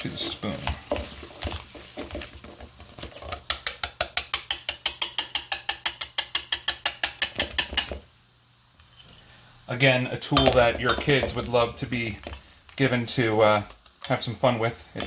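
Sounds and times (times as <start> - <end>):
wire whisk clacking against bowl: 3.2 - 7.9.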